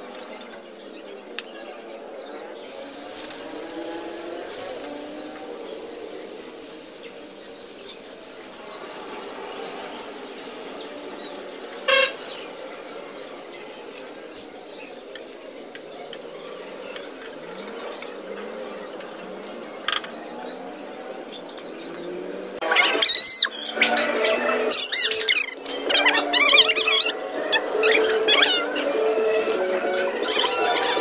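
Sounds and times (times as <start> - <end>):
food deep-frying in hot oil: 2.6 - 10.2.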